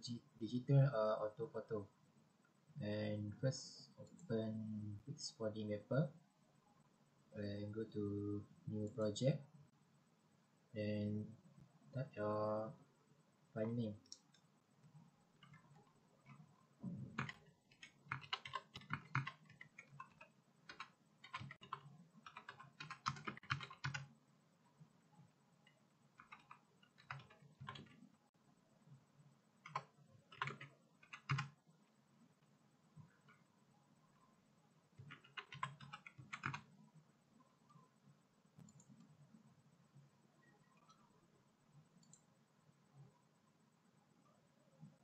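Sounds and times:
typing on computer keyboard: 15.4 - 16.4, 17.0 - 24.1, 25.6 - 28.0, 29.6 - 31.6, 35.0 - 36.7.

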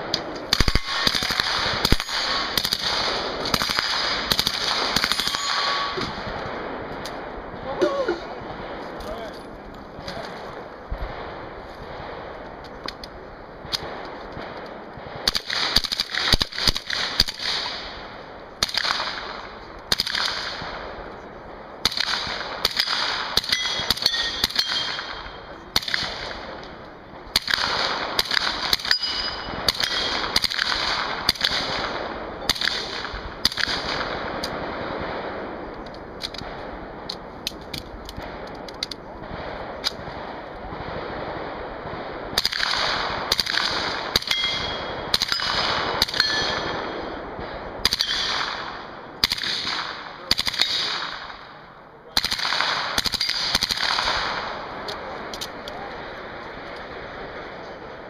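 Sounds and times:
submachine gun firing: 0.5 - 6.4, 15.2 - 20.9, 21.8 - 26.5, 27.3 - 35.3, 42.3 - 51.5, 52.2 - 54.7
steel targets clanging: 5.2 - 6.1, 23.4 - 25.5, 28.8 - 30.2, 44.2 - 46.8.

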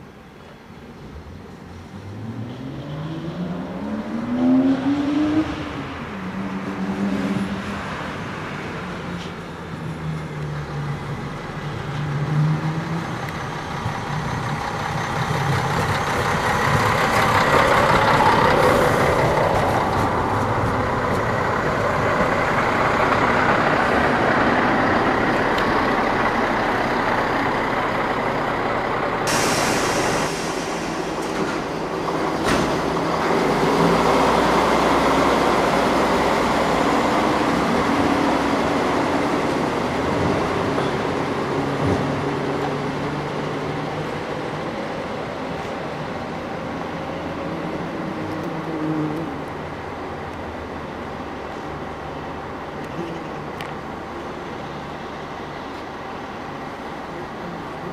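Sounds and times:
diesel train engine running: 8.6 - 48.5, 49.3 - 57.9
sudden hiss: 29.2 - 32.9.

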